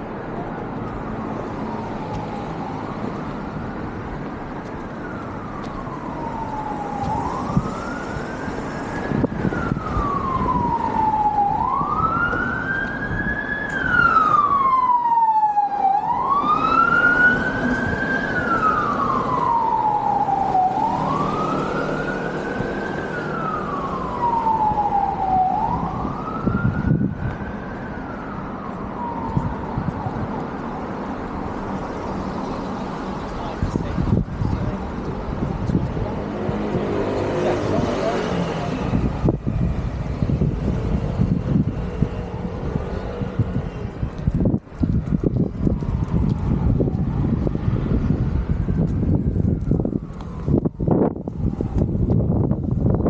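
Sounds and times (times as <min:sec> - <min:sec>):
emergency siren wailing: 0:00.0 - 0:53.0.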